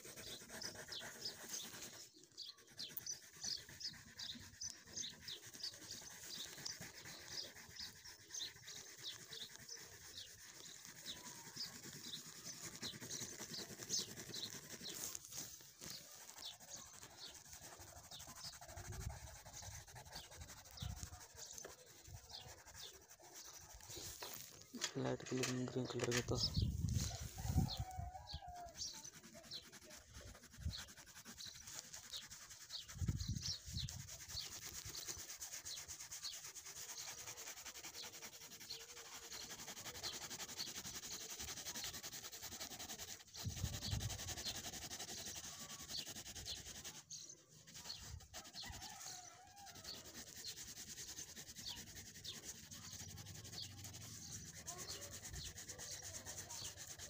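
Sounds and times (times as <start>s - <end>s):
pencil scratching on paper: 0.0s - 57.0s.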